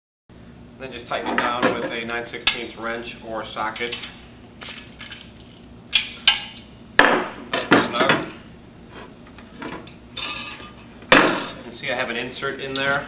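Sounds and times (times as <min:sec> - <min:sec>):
metal hanger clanking: 0:01.3 - 0:02.8, 0:03.7 - 0:06.7, 0:09.6 - 0:11.7, 0:12.7 - 0:13.0.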